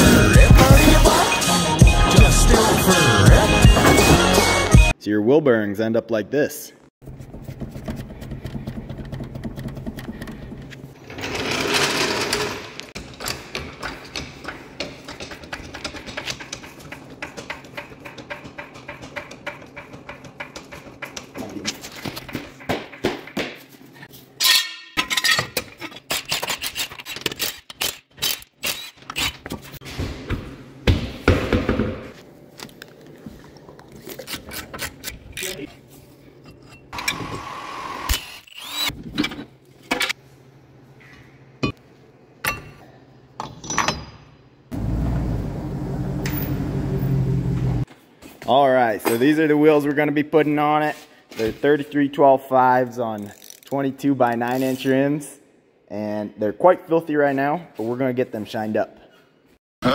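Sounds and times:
knocks and clanks: 7.5 - 23.7.

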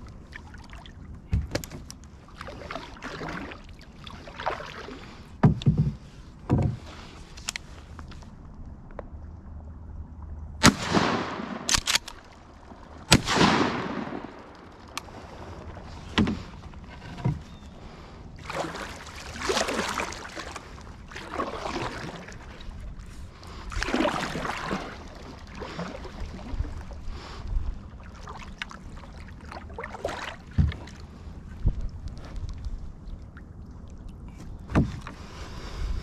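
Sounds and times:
paddle swishing water: 0.0 - 8.7, 12.2 - 36.0
shotgun shots echoing: 10.6 - 12.1, 13.1 - 14.4
sharp clicks: 11.7 - 12.3.

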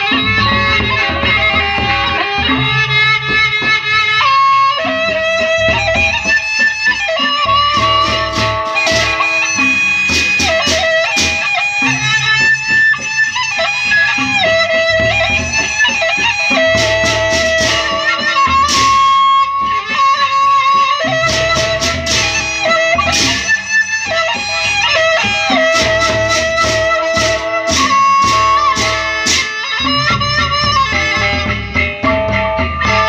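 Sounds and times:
big barrel drums: 0.0 - 33.0
bamboo flute melody: 4.2 - 31.8
cymbal clashes: 7.7 - 12.0.

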